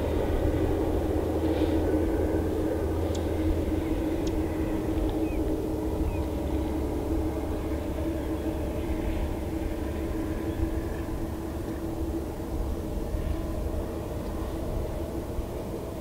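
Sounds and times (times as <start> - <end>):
low mechanical rumble: 0.0 - 16.0.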